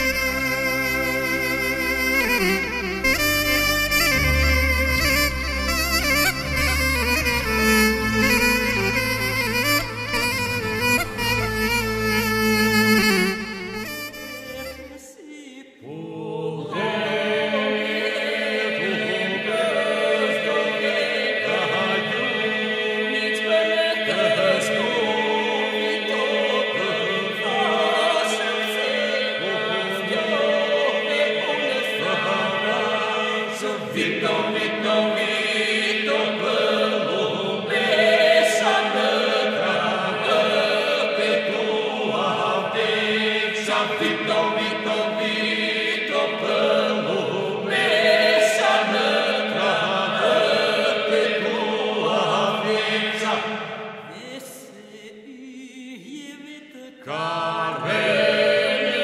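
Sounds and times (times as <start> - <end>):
held drone note: 0.0 - 15.0
voices chanting: 15.8 - 53.7.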